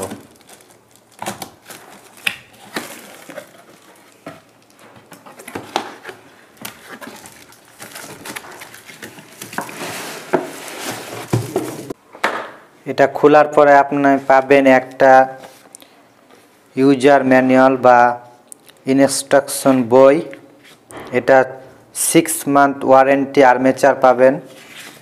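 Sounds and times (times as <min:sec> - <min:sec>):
cardboard box rustling and scraping: 0:05.0 - 0:12.0.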